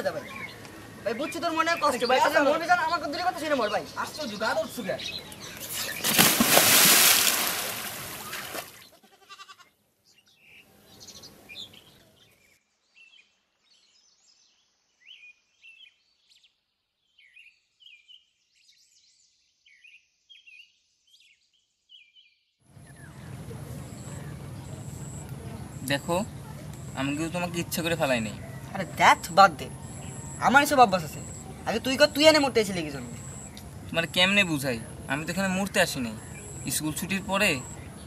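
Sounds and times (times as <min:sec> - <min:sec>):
small birds chirping: 0:00.0 - 0:38.0
heavy splash into water: 0:05.9 - 0:08.8.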